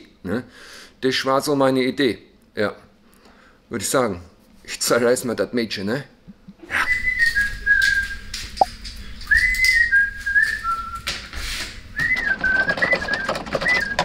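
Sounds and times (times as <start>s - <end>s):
person whistling a tune: 6.7s - 8.3s, 9.2s - 11.1s, 11.9s - 14.0s.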